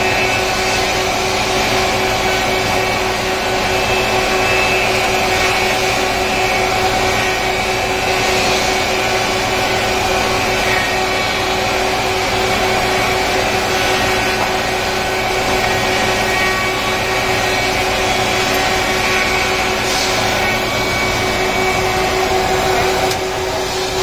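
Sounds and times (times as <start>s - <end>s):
planer machine running: 0.0s - 24.0s
steady machine whine: 0.0s - 24.0s.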